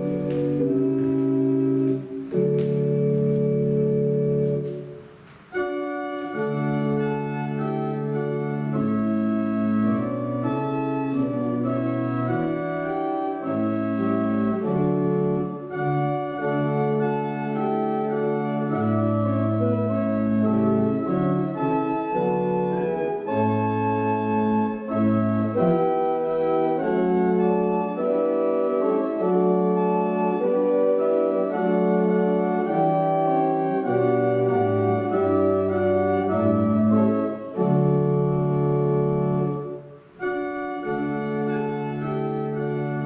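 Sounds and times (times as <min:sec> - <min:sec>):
organ playing a hymn: 0:00.0 - 0:43.0.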